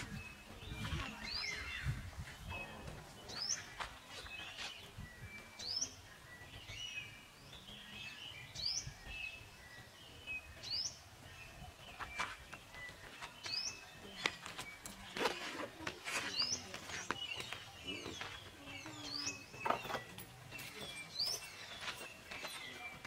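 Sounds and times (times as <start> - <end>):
birds twittering: 0.0 - 23.0.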